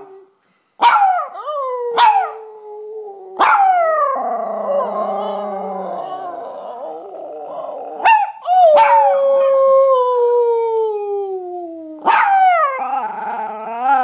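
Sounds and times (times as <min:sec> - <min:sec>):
dog howling: 0:01.0 - 0:11.1
person howling: 0:01.4 - 0:14.0.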